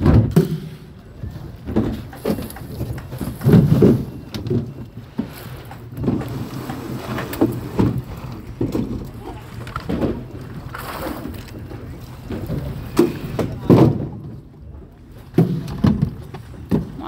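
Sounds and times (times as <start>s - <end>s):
faint voices: 9.0s - 10.2s.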